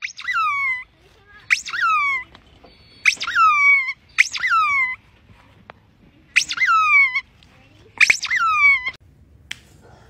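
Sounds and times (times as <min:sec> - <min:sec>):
squeaky rubber ball squeaking: 0:00.0 - 0:05.0, 0:06.3 - 0:07.3, 0:08.0 - 0:09.0.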